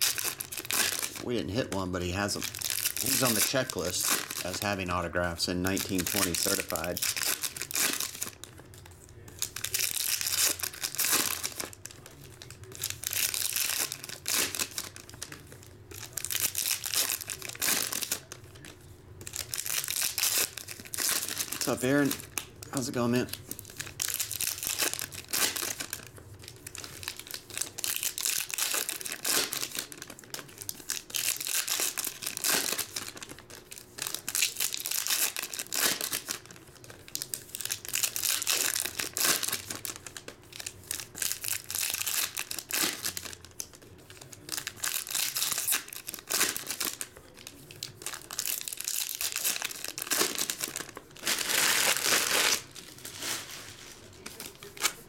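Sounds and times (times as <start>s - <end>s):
card packs torn open: 0.0s - 55.0s
foil wrappers crinkling: 0.0s - 55.0s.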